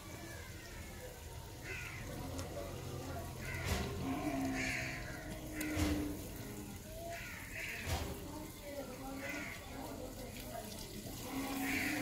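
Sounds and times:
crows cawing: 0.3 - 2.4, 3.3 - 8.2, 9.1 - 10.0, 11.3 - 12.0.

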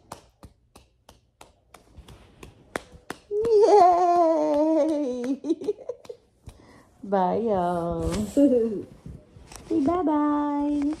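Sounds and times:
light claps or taps: 0.0 - 3.8.

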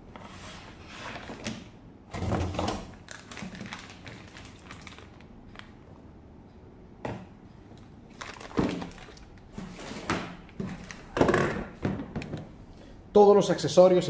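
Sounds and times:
plastic bag crinkling: 2.9 - 5.8, 8.1 - 9.8, 10.6 - 11.2.

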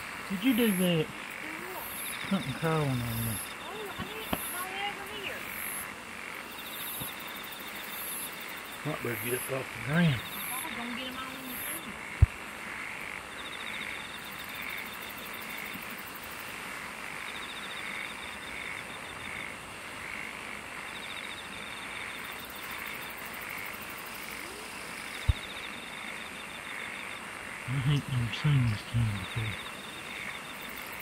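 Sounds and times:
faint high insect buzz: 0.0 - 31.0
frogs calling: 0.0 - 31.0
steady hiss: 0.0 - 31.0.

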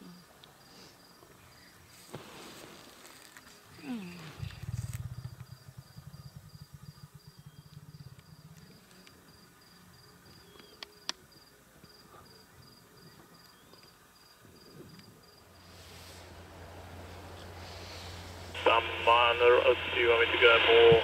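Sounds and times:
cricket chirping: 0.0 - 2.0, 3.0 - 18.4
low fast-pulsing rumble: 4.3 - 8.8, 16.2 - 21.0
sharp ticks: 4.4 - 9.2.

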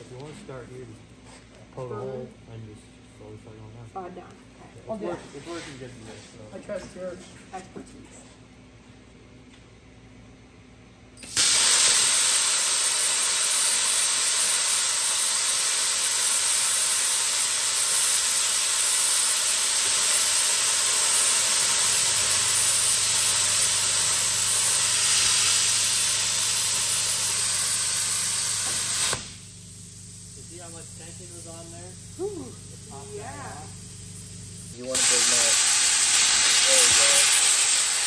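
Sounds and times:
plasma cutter hissing: 11.2 - 38.0.

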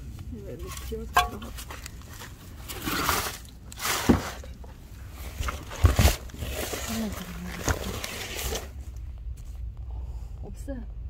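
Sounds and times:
rustling in dry leaves: 0.5 - 9.0.

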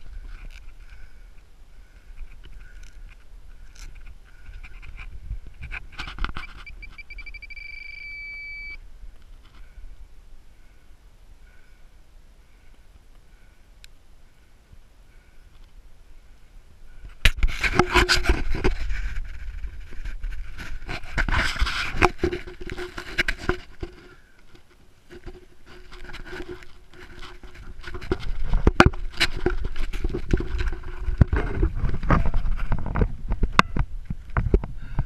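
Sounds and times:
steady mid-pitched tone: 6.4 - 8.8.

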